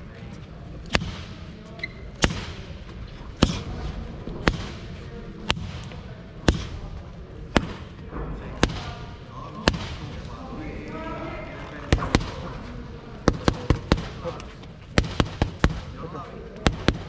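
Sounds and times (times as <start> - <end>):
boxing gloves hitting mitts: 0.8 - 1.5, 2.1 - 8.0, 8.6 - 10.2, 11.9 - 12.5, 13.2 - 17.0.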